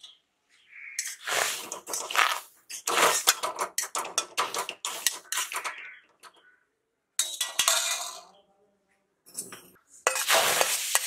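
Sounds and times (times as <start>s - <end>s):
oil sizzling: 1.0s - 3.3s, 10.1s - 11.0s
metal spatula scraping a wok: 1.0s - 5.8s, 9.3s - 11.0s.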